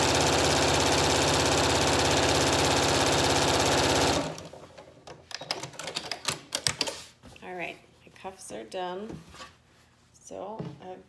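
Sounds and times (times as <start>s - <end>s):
sewing machine stitching: 0.0s - 4.6s.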